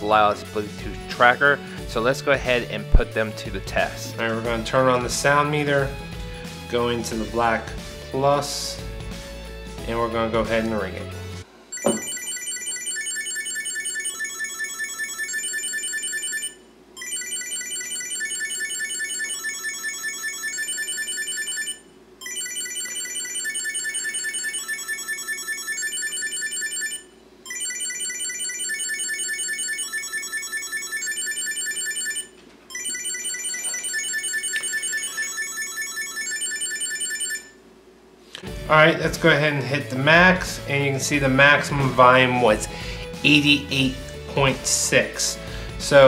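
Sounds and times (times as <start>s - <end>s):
high-pitched electronic beeping tune: 11.8s - 12.3s.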